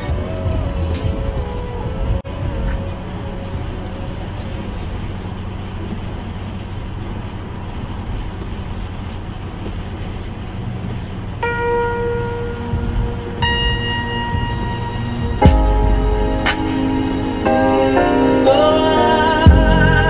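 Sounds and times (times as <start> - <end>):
car road noise on wet highway: 0.0 - 20.0
bell-like chime tones of song: 11.4 - 19.3.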